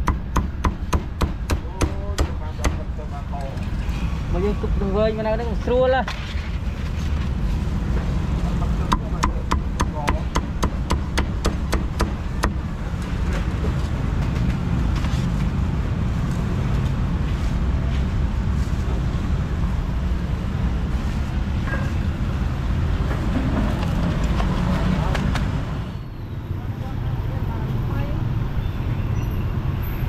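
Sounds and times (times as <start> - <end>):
cleaver chopping on wooden block: 0.0 - 2.8, 8.9 - 12.6
street traffic rumble: 0.0 - 30.0.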